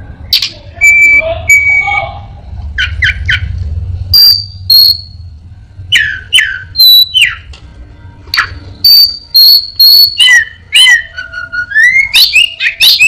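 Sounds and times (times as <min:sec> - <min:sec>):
songbird whistling: 0:00.8 - 0:02.1, 0:04.1 - 0:05.2, 0:05.9 - 0:07.5, 0:08.3 - 0:13.0.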